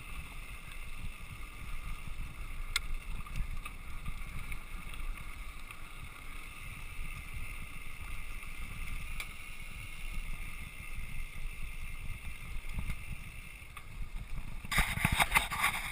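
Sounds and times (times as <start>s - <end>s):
bike tyres rumbling on dirt: 0.0s - 15.9s
bike clattering over rough ground: 0.2s - 15.9s
wind on microphone: 14.0s - 15.9s.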